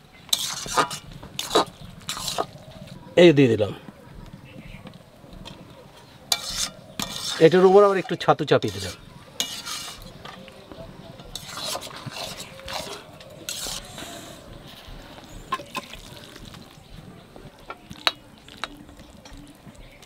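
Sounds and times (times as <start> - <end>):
spatula scraping in pan: 0.3 - 2.9, 5.4 - 10.5, 11.2 - 16.7.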